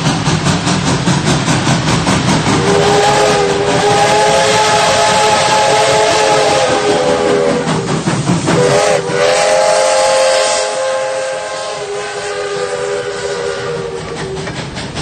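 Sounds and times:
steam hissing: 0.0s - 15.0s
steam locomotive whistle: 2.6s - 7.9s, 8.5s - 14.6s.

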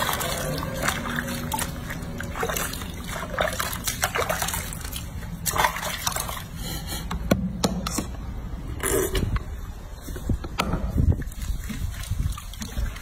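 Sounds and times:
water sloshing in sink: 0.0s - 6.6s, 10.9s - 13.0s.

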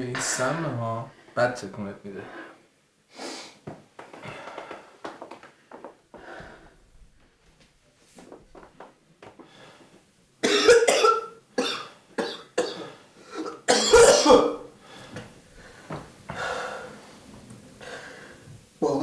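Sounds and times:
man coughing: 10.4s - 14.6s.

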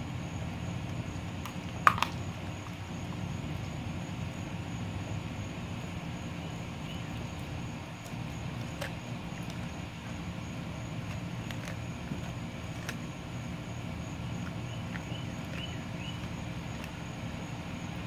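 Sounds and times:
steady low hum: 0.0s - 18.0s
dog chewing and crunching bone: 0.1s - 5.0s, 5.6s - 18.0s.

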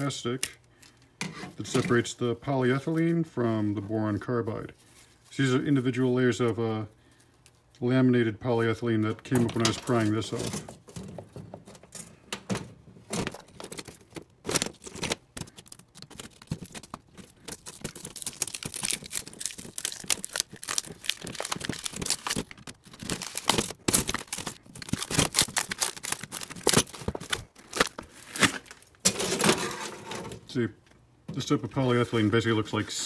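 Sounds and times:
plastic layers crackling and tearing: 9.0s - 11.1s, 13.2s - 29.7s.

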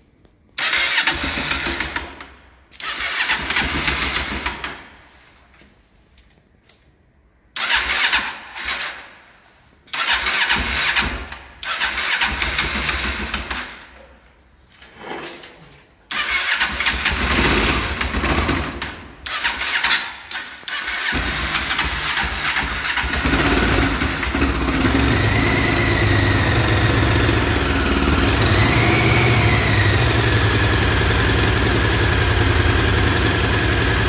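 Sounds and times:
motorcycle engine cranking: 0.6s - 4.7s, 7.6s - 8.9s, 10.0s - 13.7s, 16.1s - 34.0s.

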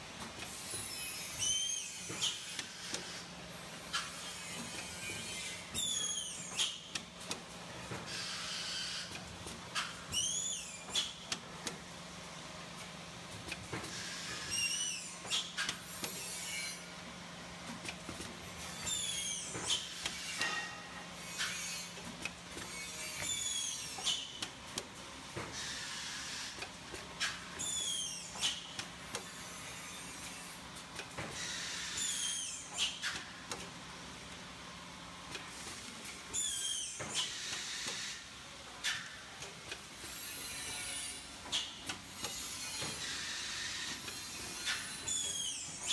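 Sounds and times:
machine hiss with falling squeal: 0.7s - 2.4s, 4.1s - 6.8s, 10.1s - 10.8s, 14.0s - 15.5s, 22.8s - 24.2s, 27.6s - 28.6s, 31.4s - 33.0s, 36.3s - 38.2s, 42.7s - 45.9s.

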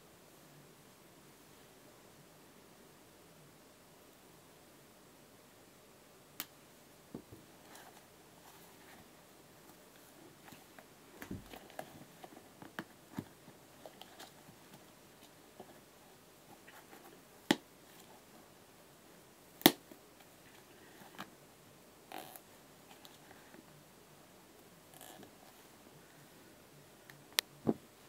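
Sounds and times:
shoe rustles and scuffs: 10.2s - 14.8s.

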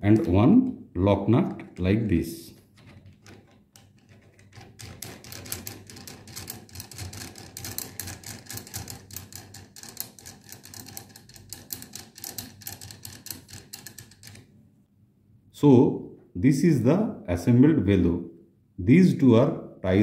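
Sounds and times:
lock nut clicking on threads: 2.6s - 14.5s.

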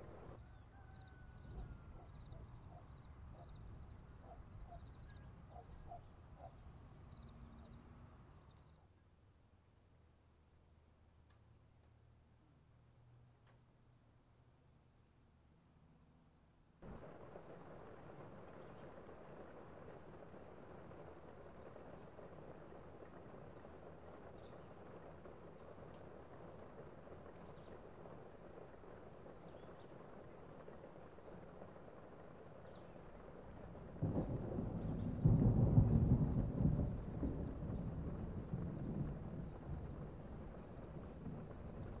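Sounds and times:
crickets trilling: 0.0s - 8.8s, 30.7s - 42.0s
thunder rumbling: 33.5s - 42.0s.

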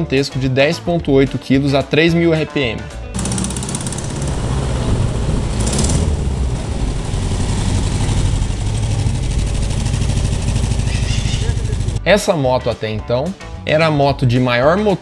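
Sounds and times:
motorcycle engine running: 3.1s - 12.0s.

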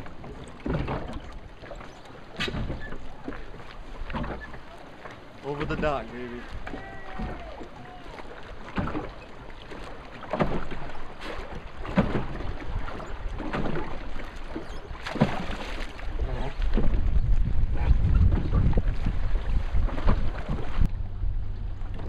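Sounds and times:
water lapping against dock: 0.0s - 22.0s
wind buffeting microphone: 14.9s - 22.0s.

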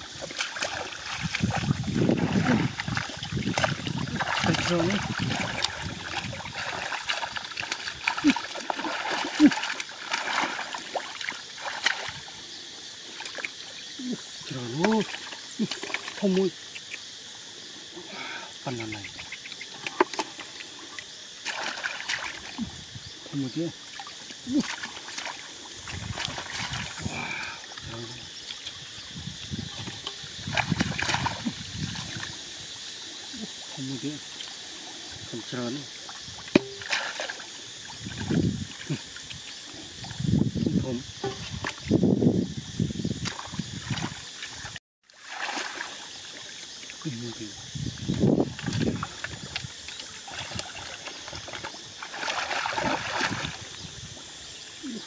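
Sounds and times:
hands splashing in muddy water: 0.0s - 12.4s, 21.4s - 22.8s, 23.9s - 28.8s, 29.6s - 32.4s, 36.5s - 37.5s, 43.2s - 46.7s, 48.0s - 54.3s
small water drips: 0.2s - 12.4s, 13.0s - 17.0s, 47.9s - 55.0s.

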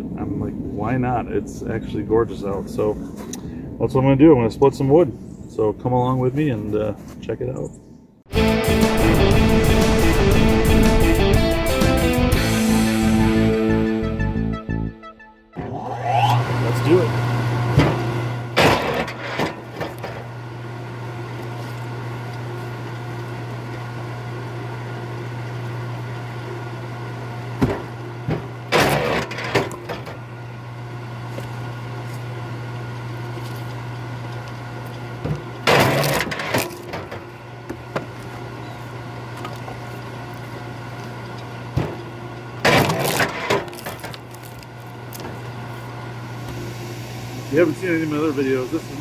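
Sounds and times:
wood splitter motor hum: 15.6s - 49.0s
wood cracking and splitting: 18.6s - 20.3s, 27.6s - 30.2s, 33.4s - 38.4s, 39.3s - 45.6s.

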